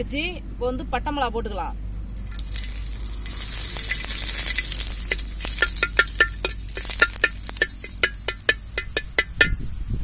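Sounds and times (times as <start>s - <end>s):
chillies sizzling in oil: 2.2s - 9.2s
metal spoon clinking on pan: 3.7s - 9.6s.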